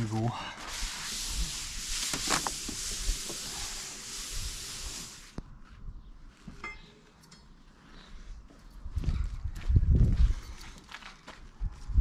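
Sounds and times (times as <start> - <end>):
aerosol spray can hissing: 0.7 - 5.4.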